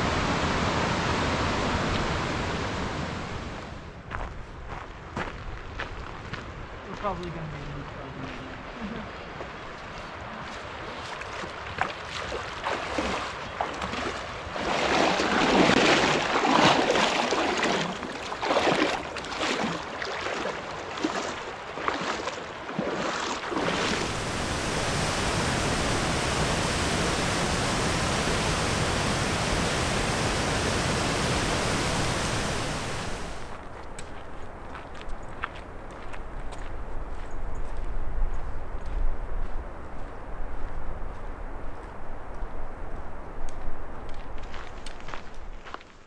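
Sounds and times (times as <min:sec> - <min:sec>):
waterfall rushing: 0:00.0 - 0:03.8, 0:23.5 - 0:33.6
water splashing while wading: 0:10.5 - 0:26.2.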